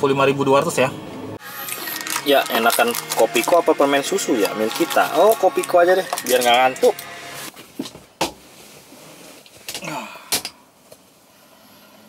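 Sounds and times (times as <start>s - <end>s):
objects clicking and crackling: 1.6s - 3.6s, 4.4s - 7.1s.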